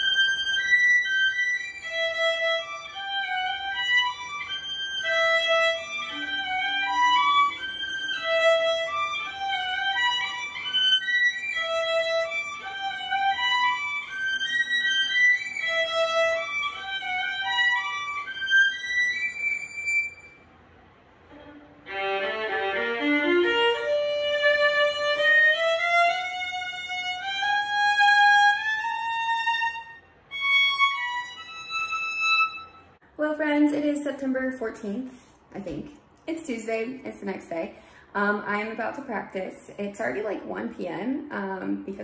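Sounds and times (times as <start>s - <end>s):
solo violin playing: 0.0s - 20.4s, 21.3s - 33.0s.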